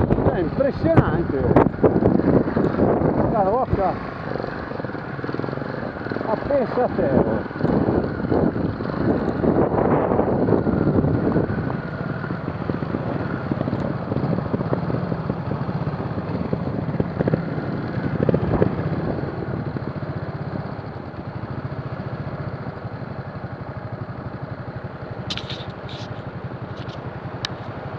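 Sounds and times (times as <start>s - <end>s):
motorcycle engine chugging: 0.0s - 27.9s.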